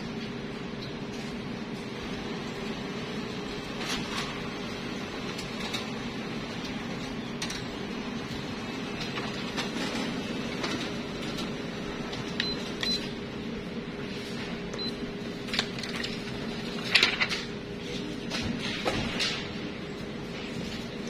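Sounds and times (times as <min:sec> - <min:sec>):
copier humming: 0:00.0 - 0:21.0
paper rustling and clicking: 0:15.4 - 0:19.5.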